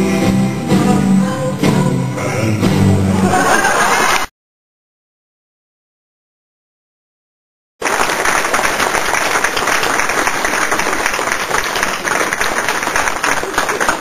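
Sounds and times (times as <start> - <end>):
audience applauding: 3.4 - 4.3, 7.8 - 14.0.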